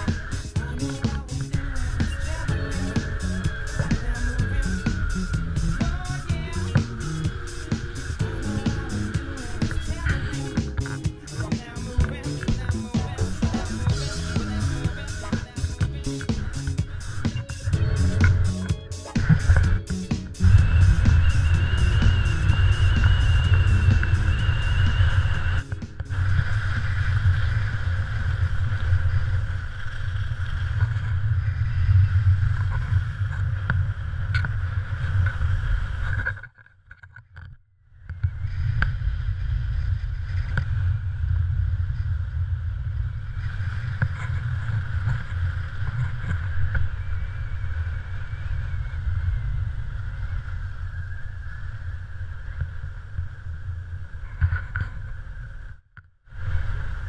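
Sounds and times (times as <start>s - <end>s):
skis hissing on snow: 0.0s - 12.5s, 13.3s - 30.7s
wind rumbling on microphone: 0.0s - 36.5s, 38.0s - 57.0s.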